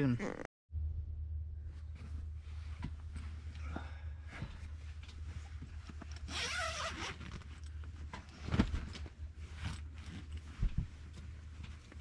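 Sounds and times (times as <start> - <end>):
fabric rustling: 4.3 - 12.0
zipper rasp: 6.3 - 7.4.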